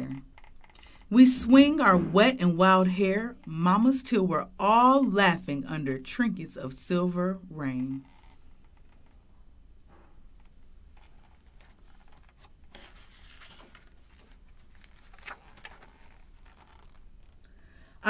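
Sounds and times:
paper page turning: 10.4 - 17.4
paper sliding over paper: 11.2 - 17.4.

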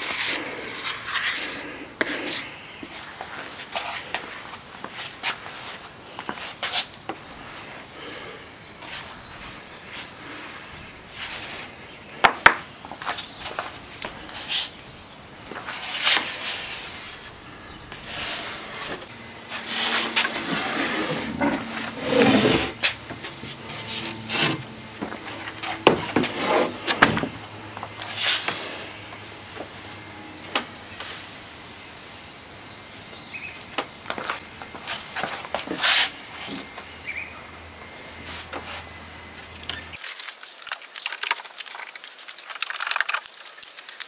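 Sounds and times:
plastic spreader scraping wet wood: 18.0 - 27.3.

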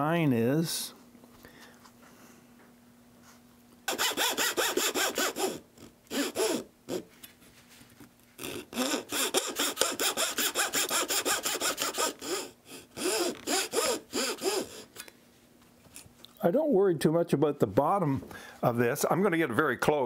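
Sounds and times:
hand saw strokes: 3.9 - 7.1, 8.4 - 14.9.

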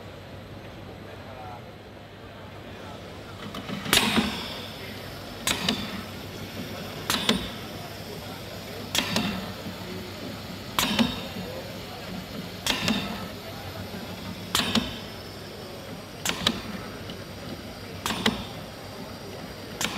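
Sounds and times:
steady low hum: 0.0 - 19.9
pump exhaust air bursts: 3.0 - 19.9.

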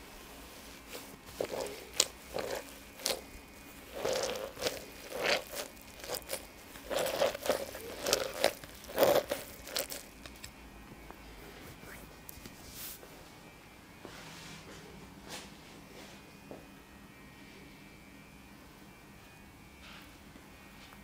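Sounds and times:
cloth rustling against plastic: 0.0 - 10.5.

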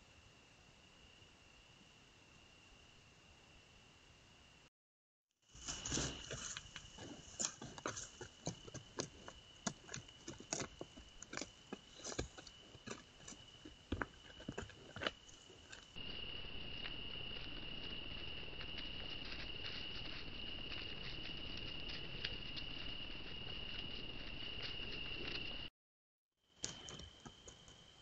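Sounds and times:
dry grass and twigs crunching: 5.5 - 16.0.

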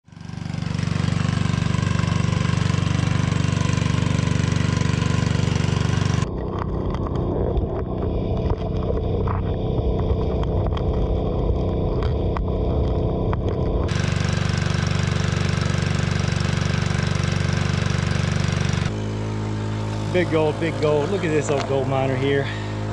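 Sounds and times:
small gasoline engine running: 0.0 - 22.9
gravel and stones clicking underwater: 6.3 - 13.8.

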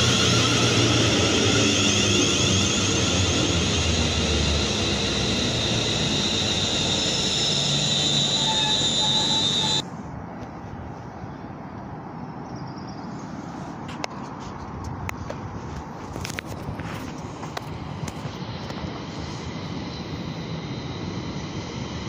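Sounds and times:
electric train whine: 0.0 - 9.9, 16.2 - 22.0
train wheels rumbling on rails: 0.0 - 9.9, 13.9 - 22.0
station background: 0.0 - 10.3.

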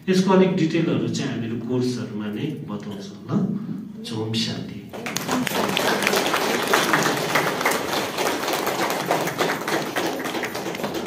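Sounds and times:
audience clapping: 4.9 - 11.0.

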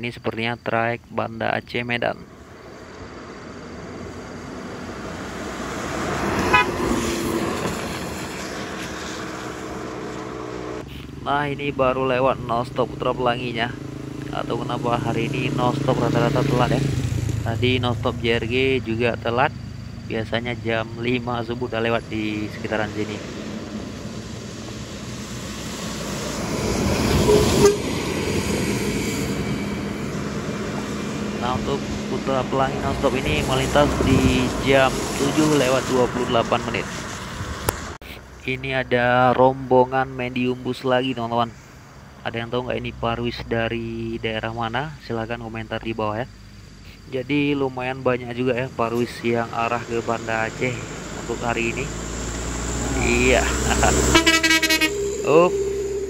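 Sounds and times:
minibus passing on wet road: 2.8 - 10.8, 21.0 - 38.0, 48.4 - 56.0
short horn toot: 6.4 - 7.2, 27.2 - 28.0, 54.0 - 56.0.

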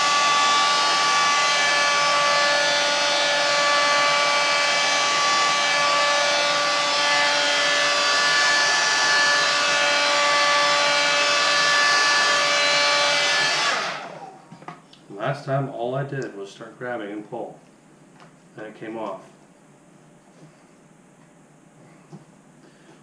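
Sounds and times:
heat gun blowing air: 0.0 - 14.4
fan motor whine: 0.0 - 14.8.

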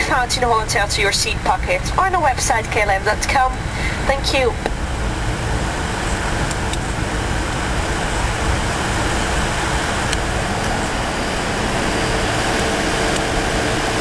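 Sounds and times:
airliner cabin roar: 0.0 - 14.0
faint steady hum: 0.0 - 14.0.

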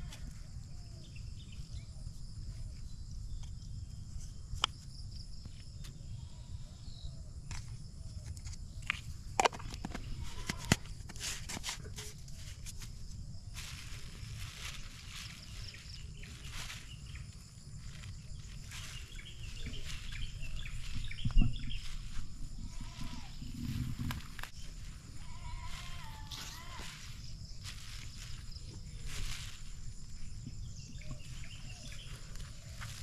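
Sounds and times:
high insect drone: 0.0 - 33.0
wind rumble on microphone: 11.9 - 33.0.

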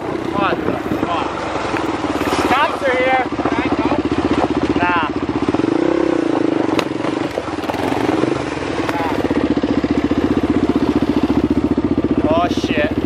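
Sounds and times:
motorcycle engine idling: 0.0 - 13.0.

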